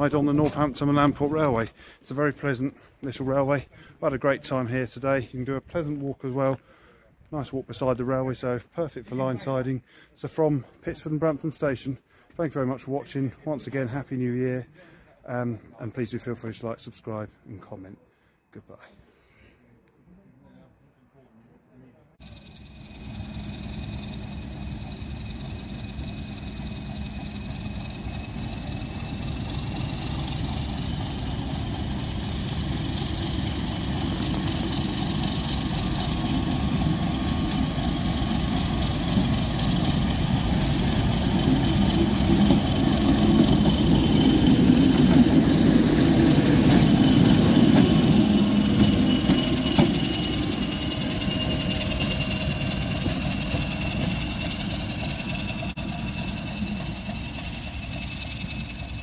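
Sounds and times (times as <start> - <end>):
diesel locomotive engine running: 0.0 - 6.1, 22.2 - 59.0.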